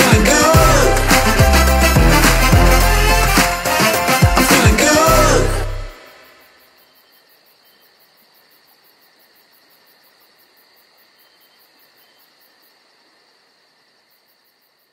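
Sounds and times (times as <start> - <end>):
music: 0.0 - 6.1
insect chorus chirping: 6.0 - 14.9.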